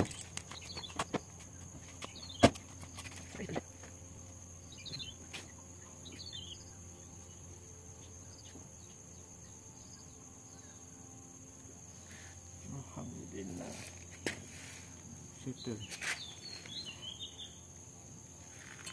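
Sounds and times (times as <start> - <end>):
bird chirps: 0.0 - 2.6, 4.6 - 10.9, 15.4 - 17.7
high insect drone: 0.0 - 18.9.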